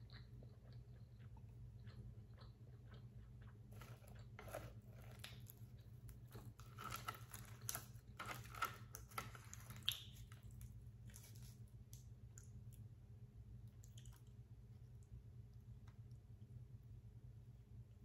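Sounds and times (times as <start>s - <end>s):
chewing: 0.0s - 12.8s, 13.7s - 14.4s
dried seaweed crackling: 6.4s - 11.6s.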